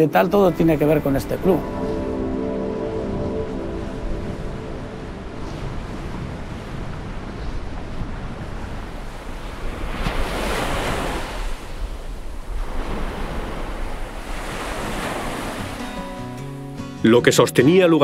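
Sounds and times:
sea waves breaking over rocks: 3.4s - 16.1s.

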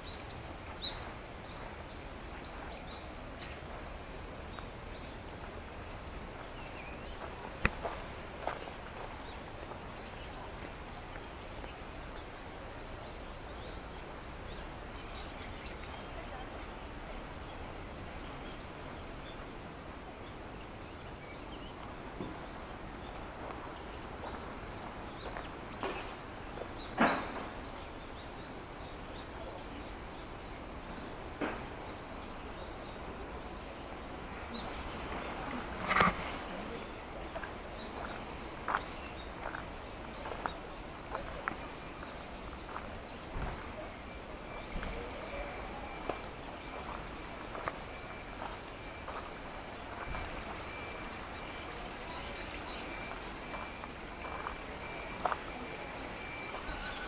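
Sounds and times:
outdoor background hiss: 0.0s - 57.0s
footsteps walking: 6.4s - 9.9s, 37.3s - 43.8s, 46.0s - 50.9s, 53.0s - 56.8s.

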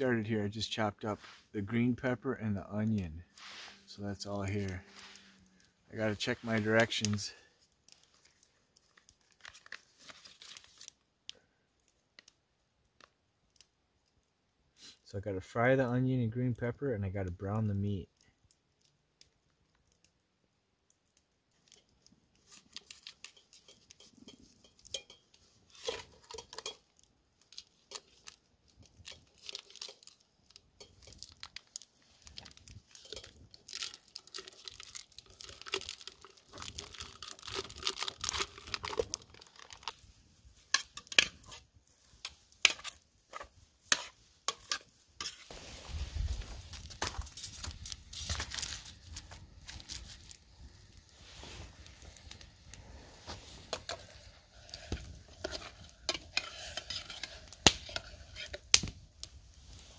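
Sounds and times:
packaging tearing and crinkling: 8.0s - 11.0s, 27.5s - 40.0s, 46.2s - 59.0s.

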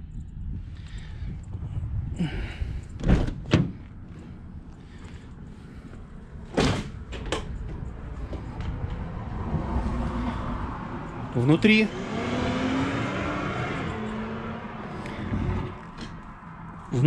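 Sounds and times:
low steady rumble: 0.0s - 11.7s
van door latch clunks: 3.0s - 3.9s, 6.5s - 7.8s.

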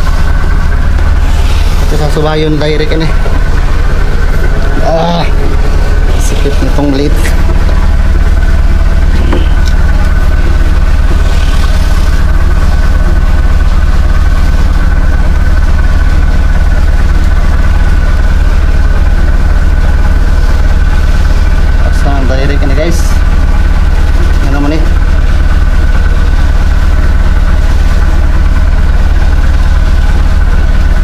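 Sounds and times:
marine diesel engine idling: 0.0s - 31.0s.

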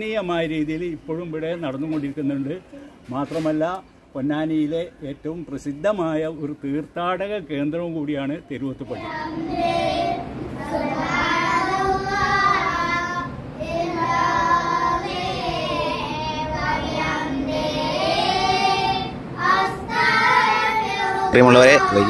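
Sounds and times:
boys chanting: 8.8s - 22.0s.

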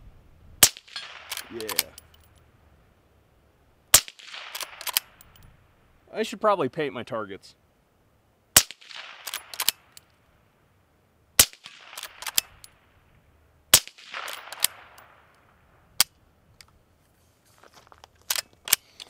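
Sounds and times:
suppressed rifle shots: 0.6s - 2.0s, 3.9s - 5.3s, 8.6s - 10.0s, 11.4s - 12.8s, 13.7s - 15.5s
rifle lever clicking: 1.2s - 2.2s, 4.5s - 5.4s, 9.2s - 9.9s, 11.9s - 12.7s.

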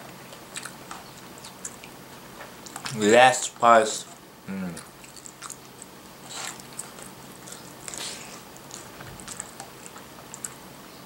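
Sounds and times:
person chewing: 0.2s - 2.0s, 2.6s - 3.0s, 4.5s - 10.7s.

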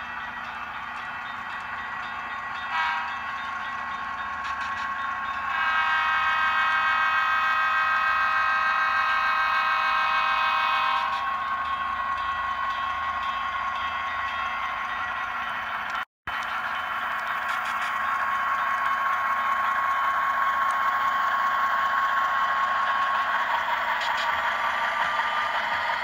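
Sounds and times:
model locomotive air horn: 2.7s - 3.2s, 5.5s - 11.3s.

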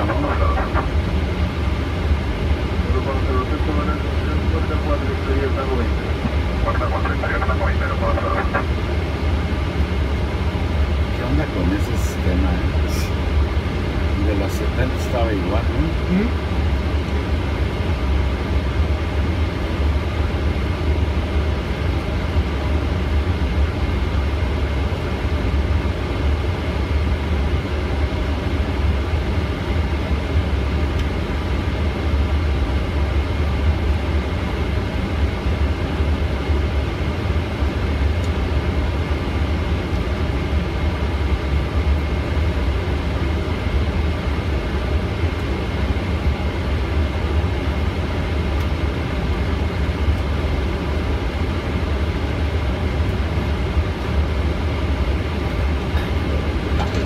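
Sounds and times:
jet engines idling rumble: 0.0s - 57.0s.

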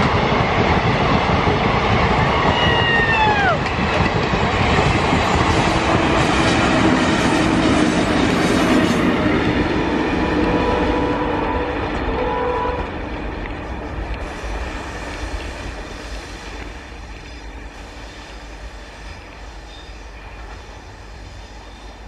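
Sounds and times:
train wheels rumbling: 0.0s - 22.0s.

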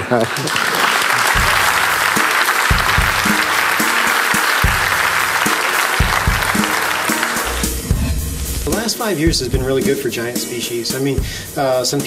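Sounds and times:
large audience applauding: 0.0s - 7.8s
music playing: 0.9s - 12.0s.

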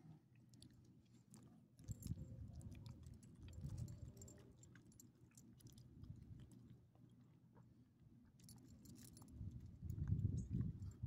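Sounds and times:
faint low rumble: 0.0s - 11.0s
dog chewing and licking: 0.4s - 7.1s.

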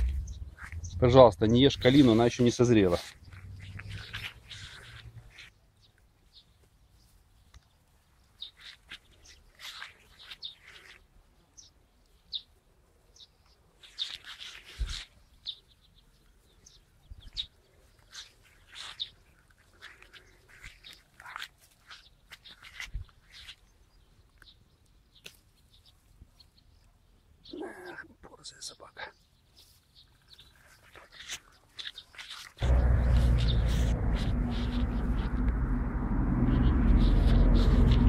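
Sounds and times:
leaves rustling: 0.0s - 5.6s, 7.0s - 11.4s, 13.7s - 15.5s, 17.6s - 23.7s, 29.6s - 38.0s
bird chirps: 0.0s - 11.0s.

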